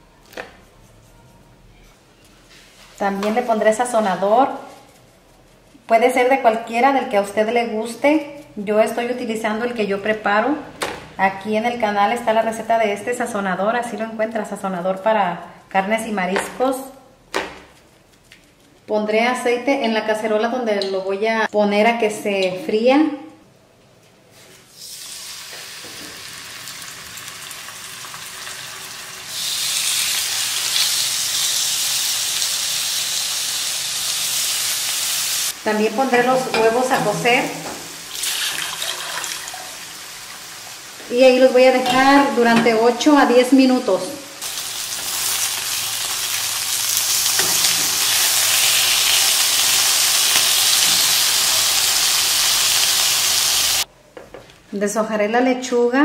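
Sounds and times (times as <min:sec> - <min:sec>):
chicken sizzling in a frying pan: 0:24.8 - 0:36.3, 0:37.6 - 0:41.4, 0:44.3 - 0:53.9.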